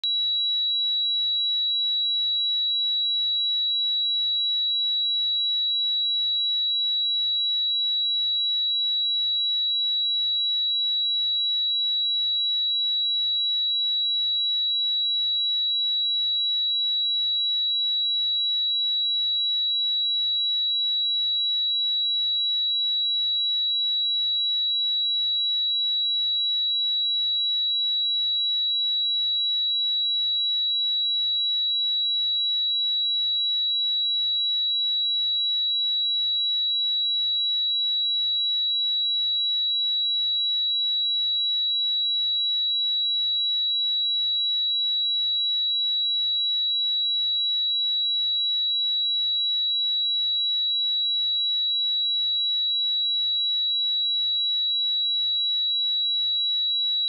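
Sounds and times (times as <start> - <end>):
high-pitched sine test tone: 0.0 - 57.0.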